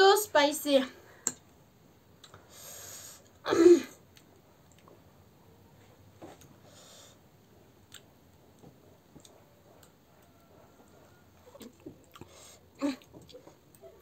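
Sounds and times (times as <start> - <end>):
person chewing: 2.1 - 2.5, 7.6 - 10.3, 10.9 - 14.0.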